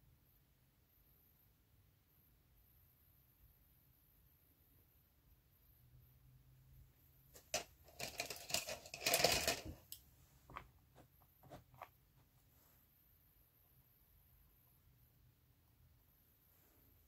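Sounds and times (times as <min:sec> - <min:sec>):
small hard objects clattering: 0:07.4 - 0:10.6.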